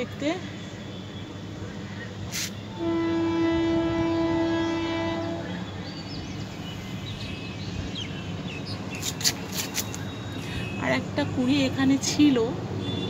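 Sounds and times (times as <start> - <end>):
horn long steady note: 2.7 - 5.8.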